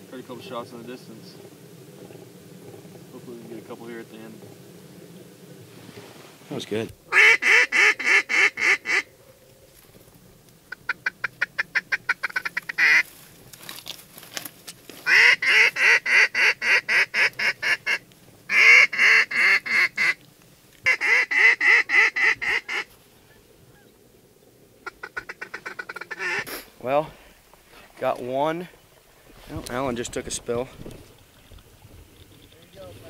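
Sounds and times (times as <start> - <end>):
duck call quacks: 7.1 - 9.1, 10.7 - 13.1, 15.0 - 20.2, 20.9 - 22.9, 24.8 - 26.6.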